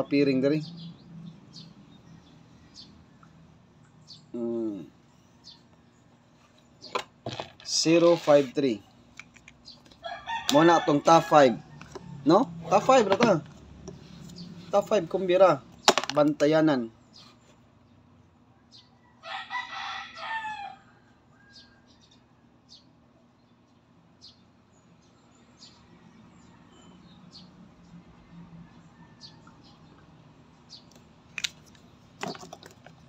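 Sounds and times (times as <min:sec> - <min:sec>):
rooster crowing: 0:10.0 - 0:12.7, 0:19.0 - 0:22.2, 0:28.4 - 0:29.7.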